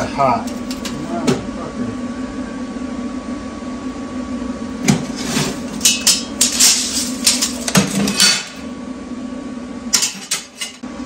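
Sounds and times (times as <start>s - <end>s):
steady low hum: 0.0s - 11.0s
metal tools clattering on table: 5.8s - 8.6s.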